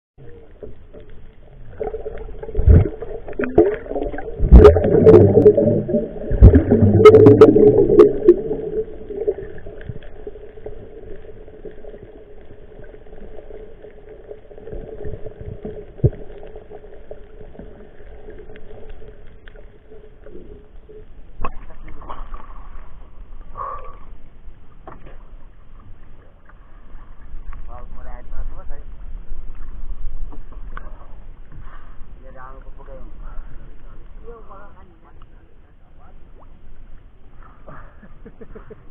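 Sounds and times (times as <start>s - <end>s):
steady underwater hum: 0.2s - 38.9s
rushing water: 1.5s - 20.0s.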